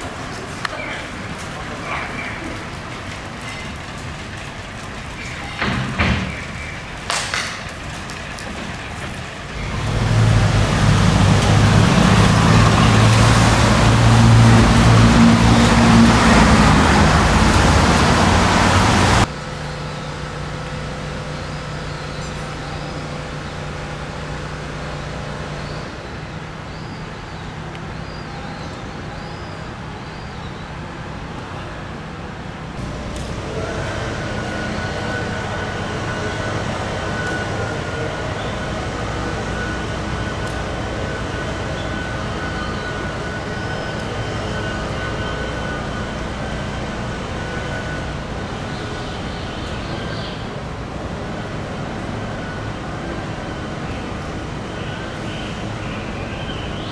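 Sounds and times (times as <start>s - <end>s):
hum of city traffic: 0.0s - 56.9s
vehicle engine running: 6.6s - 26.8s, 32.8s - 56.9s.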